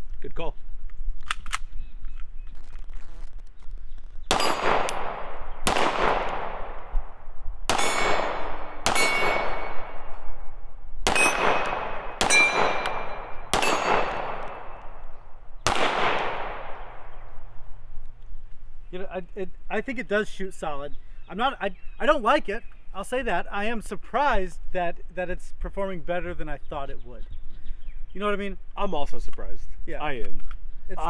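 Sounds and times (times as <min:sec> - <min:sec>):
pistol single shots: 0:04.3 - 0:10.4, 0:11.0 - 0:17.2.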